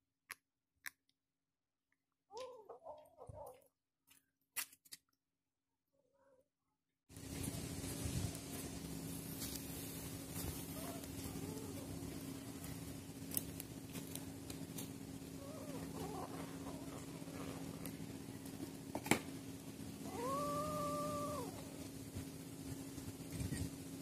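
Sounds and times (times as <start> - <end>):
low hum: 7.1 - 24.0
kittens mewing: 10.5 - 12.5, 15.3 - 17.8, 20.0 - 21.9.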